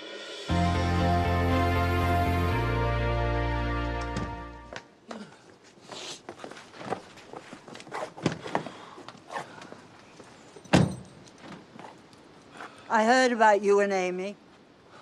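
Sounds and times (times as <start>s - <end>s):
theme music: 0.0s - 4.8s
footsteps on hard surface: 5.6s - 8.8s.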